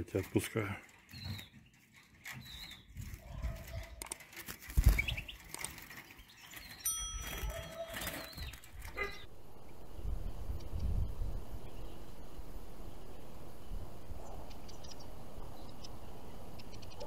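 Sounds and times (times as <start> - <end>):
wings fluttering: 0.0 - 17.0
high bird chirps: 1.1 - 3.4, 6.2 - 12.1.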